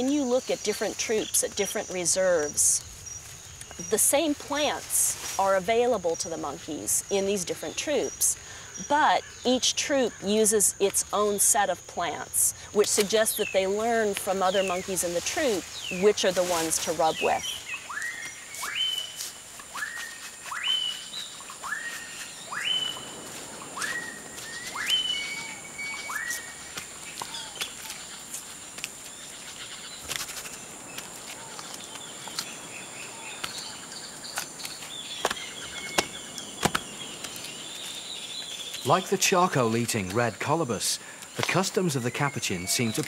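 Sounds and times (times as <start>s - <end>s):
bird twittering: 13.1s - 28.2s
bird whistle sweeping upward: 17.8s - 21.0s, 21.6s - 23.0s, 23.8s - 26.5s.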